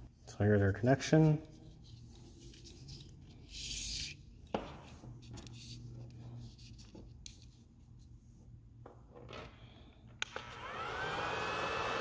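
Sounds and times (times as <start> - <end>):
heat gun fan blowing: 10.2 - 12.0.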